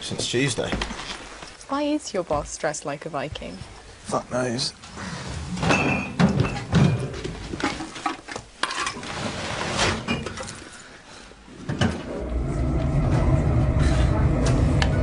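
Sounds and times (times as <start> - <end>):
glass bottles clinking: 5.6 - 7.2.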